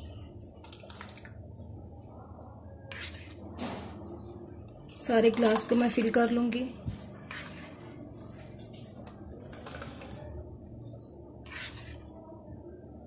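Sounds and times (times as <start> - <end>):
ladle scraping a wok: 2.9 - 4.0, 7.0 - 8.9, 11.4 - 12.2.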